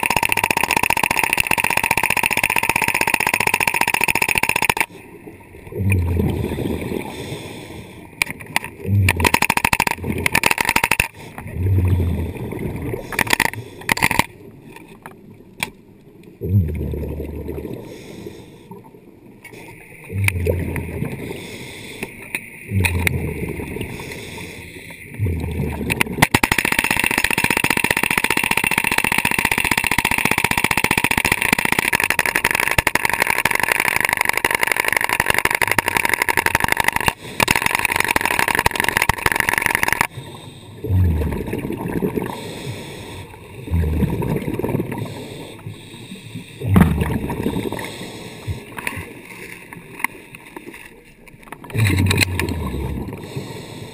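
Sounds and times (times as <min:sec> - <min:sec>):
exhaled bubbles: 0:05.5 - 0:07.4, 0:08.7 - 0:13.7, 0:16.4 - 0:18.1, 0:20.0 - 0:21.5, 0:22.7 - 0:24.5, 0:25.1 - 0:49.4, 0:51.6 - 0:53.7
scuba regulator breathing: 0:06.2 - 0:08.4, 0:11.0 - 0:14.1, 0:17.7 - 0:18.8, 0:19.4 - 0:23.2, 0:23.8 - 0:25.6, 0:37.0 - 0:37.9, 0:39.9 - 0:41.5, 0:42.2 - 0:50.5, 0:51.8 - 0:53.9.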